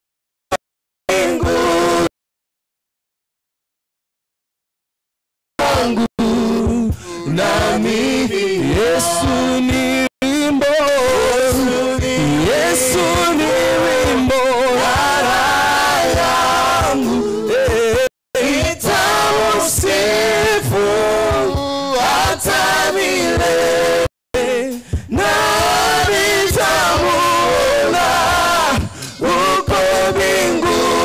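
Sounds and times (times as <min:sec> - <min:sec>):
voices singing along: 0:01.1 - 0:02.1, 0:05.6 - 0:31.0
man singing a chant: 0:05.6 - 0:15.5.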